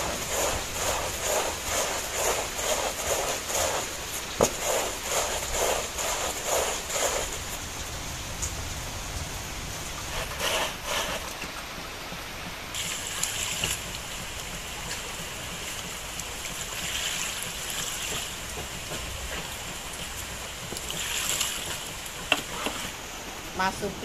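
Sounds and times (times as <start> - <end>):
water running and splashing: 0.0 - 8.0, 9.7 - 23.6.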